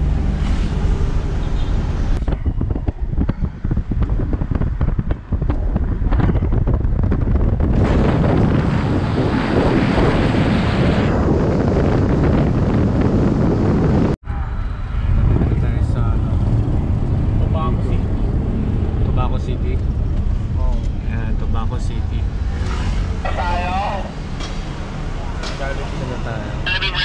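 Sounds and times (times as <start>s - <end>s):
vehicle rumble: 0.0s - 27.0s
wind buffeting microphone: 2.1s - 23.1s.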